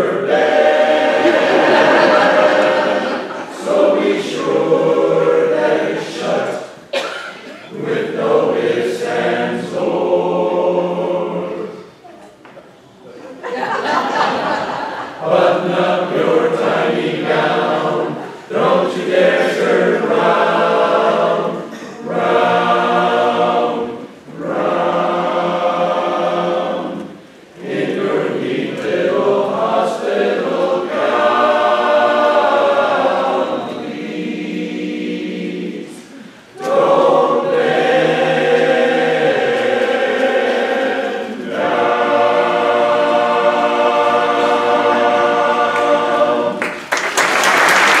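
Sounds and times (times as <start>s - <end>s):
chorus singing a cappella: 0.0s - 12.0s, 13.4s - 48.0s
applause: 46.6s - 48.0s.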